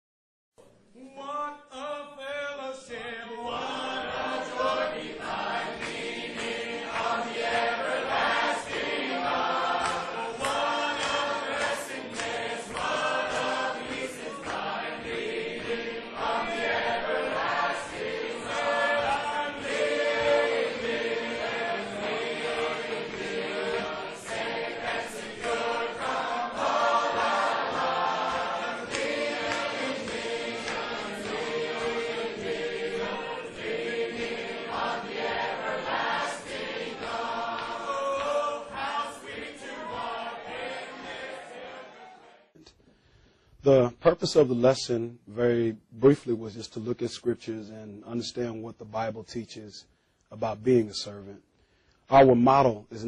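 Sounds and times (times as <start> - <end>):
choir singing a hymn: 2.6 - 42.5.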